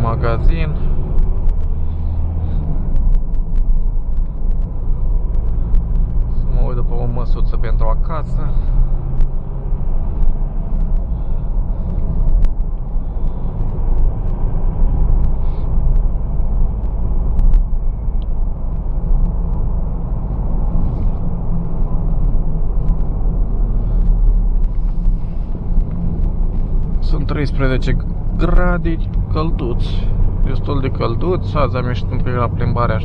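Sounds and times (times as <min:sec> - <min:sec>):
engine and road rumble in car: 0:00.0 - 0:33.0
faint clicks: 0:10.2 - 0:14.4.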